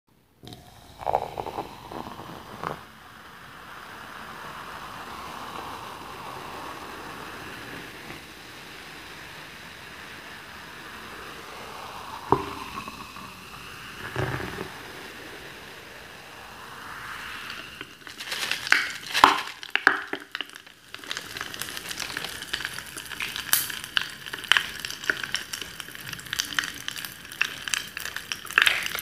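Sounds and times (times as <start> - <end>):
drink pouring into glass mug: 0.4 - 2.9, 11.7 - 15.0, 16.9 - 29.0
fizzing hiss of foam: 0.5 - 29.0.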